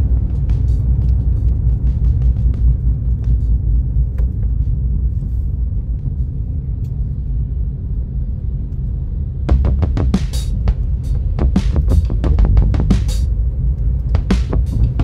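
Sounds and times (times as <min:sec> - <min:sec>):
music with drums: 0:00.0 - 0:03.7, 0:09.5 - 0:13.3, 0:14.2 - 0:15.0
car driving rumble: 0:00.0 - 0:15.0.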